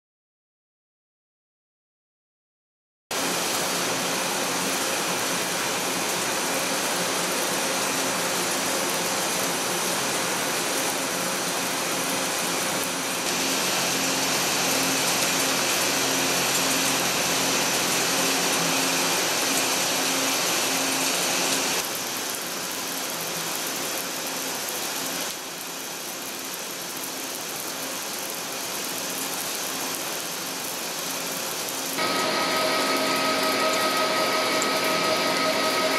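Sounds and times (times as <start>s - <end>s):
machine hum: 13.2s - 21.8s, 32.0s - 35.9s
metal cutting hiss: 13.2s - 21.8s, 32.0s - 35.9s.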